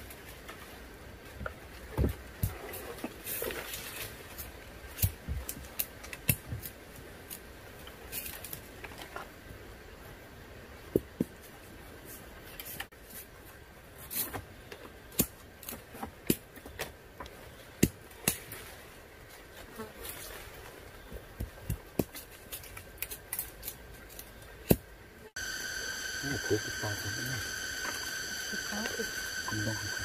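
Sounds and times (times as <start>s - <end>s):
insects buzzing: 25.2s - 30.0s.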